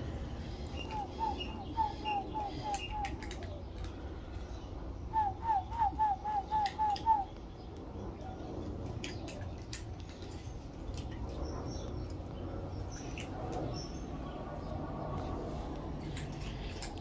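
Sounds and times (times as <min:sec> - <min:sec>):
bird calling downslurred notes: 0:00.7 - 0:03.6, 0:05.1 - 0:07.4
cat chewing dry kibble: 0:15.2 - 0:17.0.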